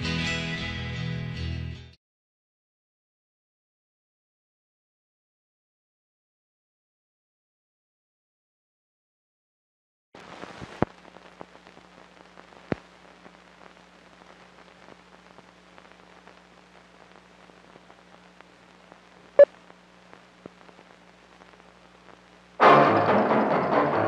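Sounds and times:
film crackle and hiss: 10.2 - 22.6
low steady hum: 10.2 - 22.6.

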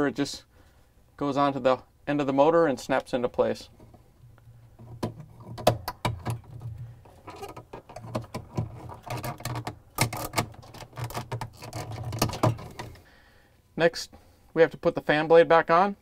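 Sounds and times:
plastic bracket clicks and knocks: 4.8 - 13.0.

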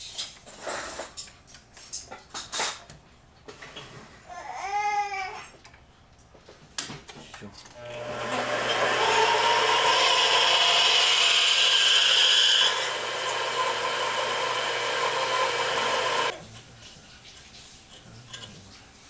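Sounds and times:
drill bit cutting metal: 7.8 - 16.3
lathe motor hum: 7.8 - 16.3.

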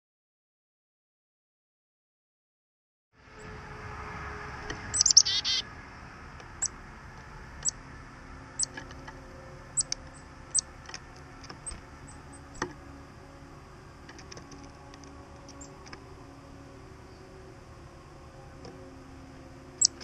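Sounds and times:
chickadee calling: 4.9 - 5.6, 9.8 - 10.7, 19.8 - 20.0.

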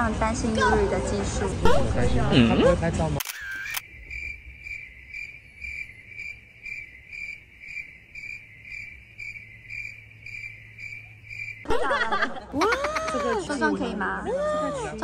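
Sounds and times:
cricket chirping: 3.2 - 13.6.

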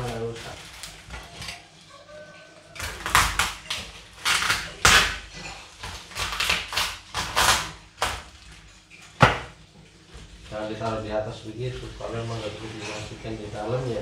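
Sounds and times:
parcel tape and cardboard ripping: 2.8 - 8.3.

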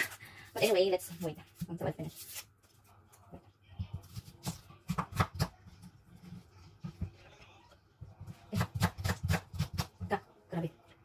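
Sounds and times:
peeling and handling sounds: 1.1 - 3.3.

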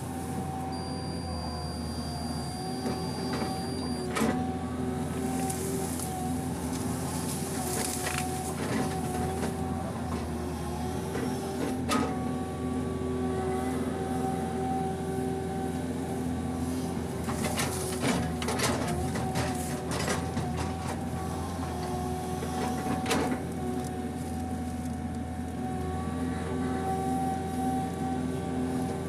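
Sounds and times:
excavator engine running: 0.0 - 29.0.

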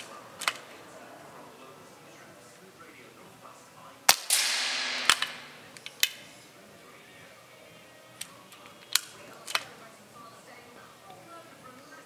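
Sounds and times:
air rifle action clicks: 0.0 - 0.8, 4.1 - 6.3, 8.2 - 9.8.

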